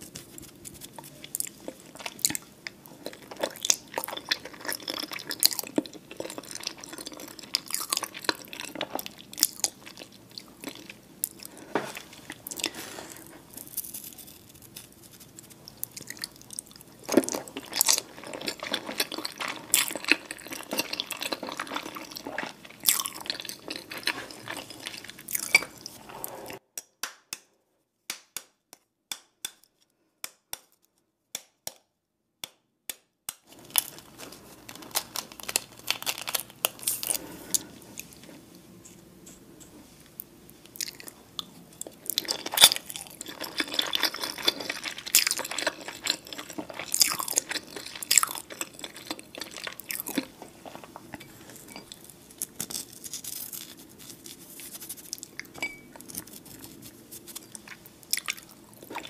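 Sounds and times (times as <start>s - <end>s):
wet chewing of egg: 0.5s - 26.6s, 40.6s - 59.0s.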